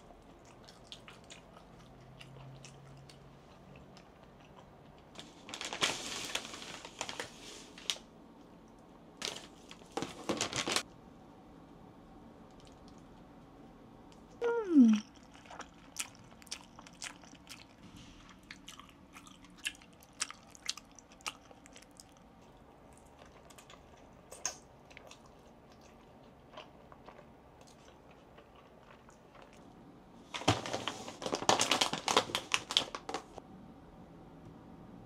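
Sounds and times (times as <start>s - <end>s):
soft chewing: 0.0s - 5.2s, 14.1s - 29.8s
chip packet crackling: 5.2s - 7.4s, 9.2s - 10.8s, 30.4s - 33.4s.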